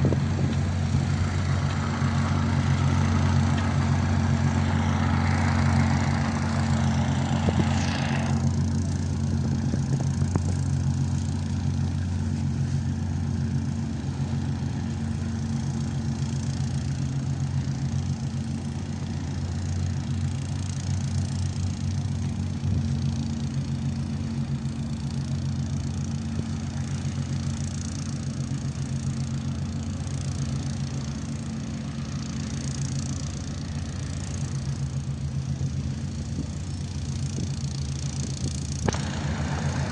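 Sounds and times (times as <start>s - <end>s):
engine idling: 0.0s - 39.9s
rushing noise: 38.8s - 39.9s.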